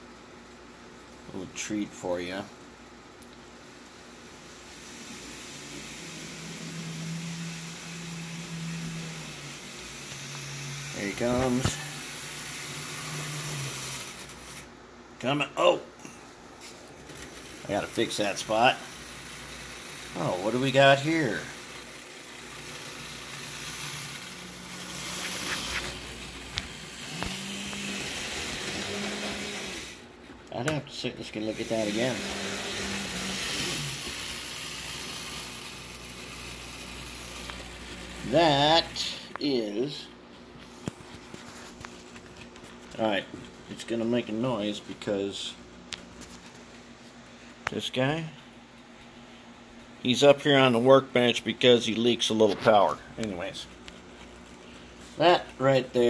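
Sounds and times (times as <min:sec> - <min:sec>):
electric motor humming: 0:04.2 - 0:14.7, 0:16.9 - 0:30.2, 0:31.2 - 0:40.0
model train hiss: 0:04.3 - 0:14.7, 0:17.2 - 0:30.0, 0:31.4 - 0:39.4.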